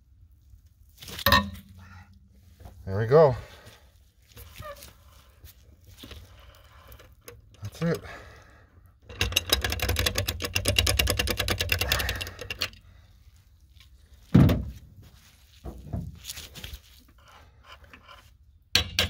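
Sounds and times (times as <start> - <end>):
sharp metal clank: 1.2 - 1.8
ratchet metallic clicking: 9.1 - 12.8.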